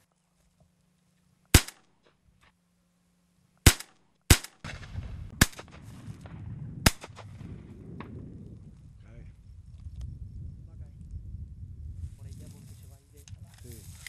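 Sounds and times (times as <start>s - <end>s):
shotgun shots: 1.5s - 1.9s, 3.6s - 8.2s.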